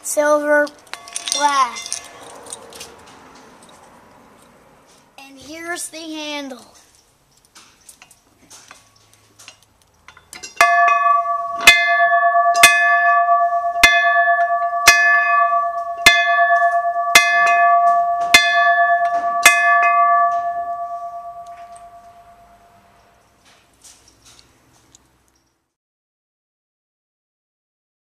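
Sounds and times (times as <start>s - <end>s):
train bell ringing: 10.6s - 23.2s.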